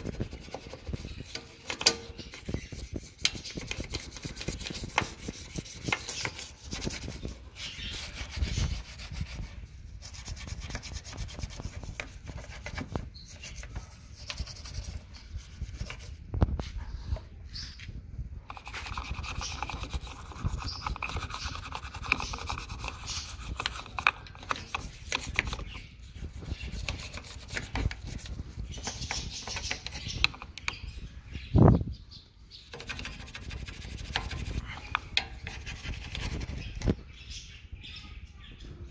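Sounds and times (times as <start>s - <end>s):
toothbrush scrubbing metal: 0.0s - 16.2s, 18.5s - 30.5s, 32.7s - 36.7s.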